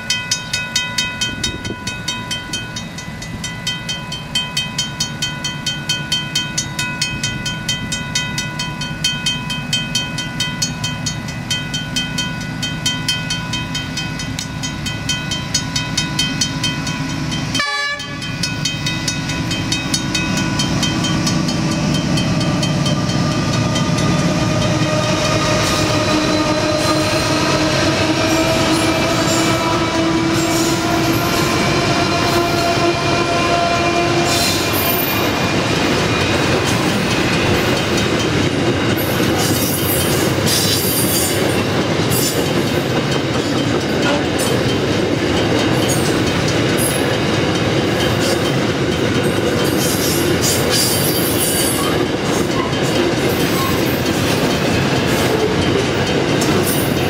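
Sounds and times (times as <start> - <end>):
level crossing bell ringing: 0.0 - 24.7
diesel locomotives approaching: 0.0 - 57.0.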